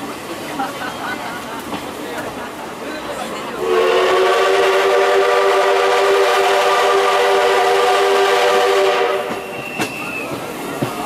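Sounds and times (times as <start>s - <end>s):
steam whistle chord blast: 3.6s - 10.0s.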